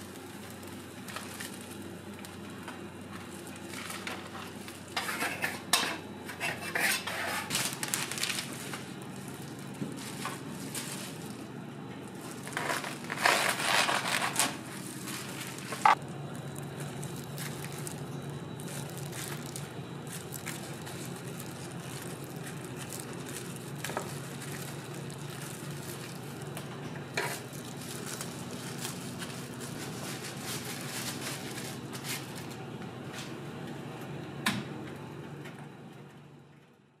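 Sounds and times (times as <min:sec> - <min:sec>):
steady hum: 0:00.0 - 0:37.0
kitchen handling noise: 0:04.0 - 0:07.8.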